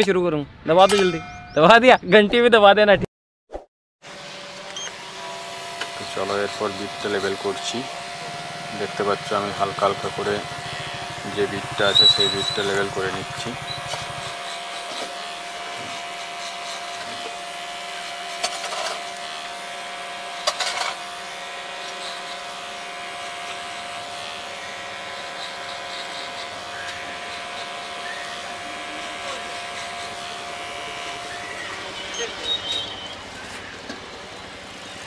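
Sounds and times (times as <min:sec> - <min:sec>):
electric hair clipper humming: 0:04.1 - 0:35.0.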